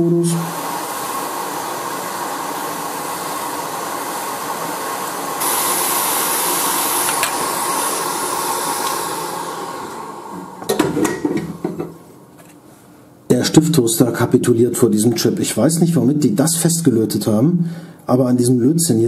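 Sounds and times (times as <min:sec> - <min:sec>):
hot air tool hissing: 0:00.0 - 0:11.9.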